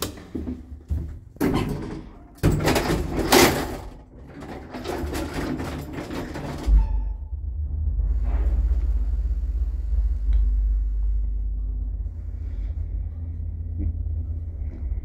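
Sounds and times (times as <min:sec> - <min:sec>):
sliding lift doors rattling: 0:01.2 - 0:09.2
lift drive humming: 0:06.2 - 0:15.0
low thud: 0:06.7 - 0:11.2.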